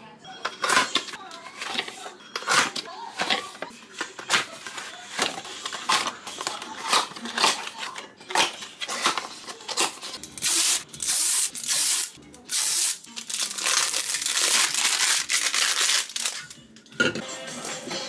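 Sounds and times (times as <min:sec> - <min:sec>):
packaging tearing and crinkling: 0:08.4 - 0:16.6.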